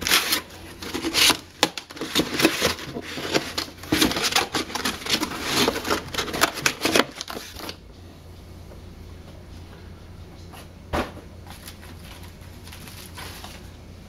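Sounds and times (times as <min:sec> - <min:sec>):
cardboard scraping and knocking: 0:00.8 - 0:07.6.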